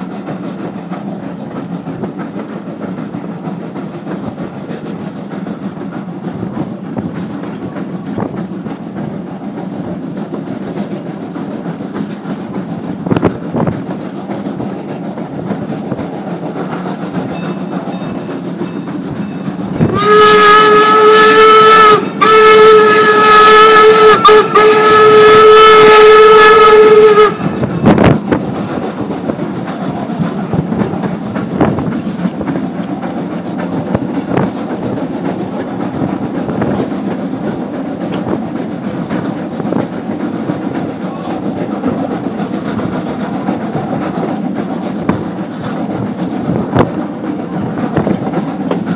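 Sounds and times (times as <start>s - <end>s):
train coach rumbling on rails: 0.0s - 48.9s
steam locomotive whistle: 19.4s - 28.2s.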